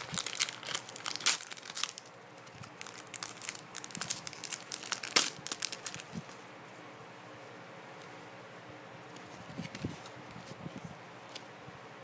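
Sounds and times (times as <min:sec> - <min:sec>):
foil pack tearing and crinkling: 0:00.0 - 0:06.3.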